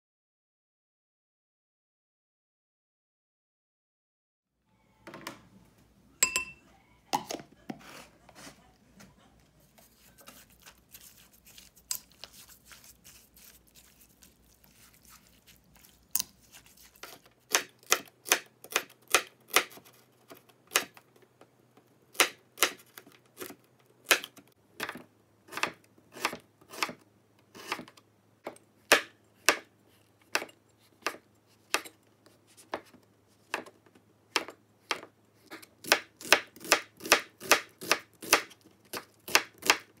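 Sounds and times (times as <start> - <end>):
ringing clinks: 6.2 - 6.6
soft rustling: 7.8 - 17.3
knife slicing on cutting board: 9.8 - 18.4.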